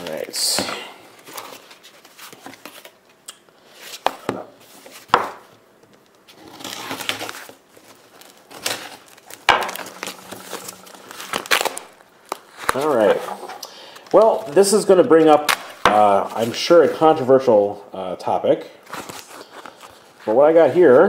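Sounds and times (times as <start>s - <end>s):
packaging rustling: 6.0s - 16.6s.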